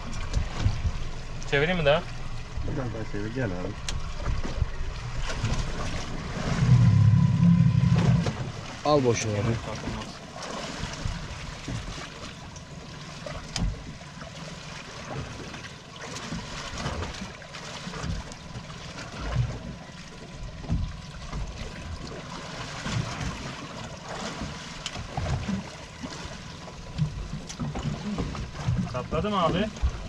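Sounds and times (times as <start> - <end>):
water lapping against boat hull: 0.0 - 30.0
low thumps: 3.8 - 8.7.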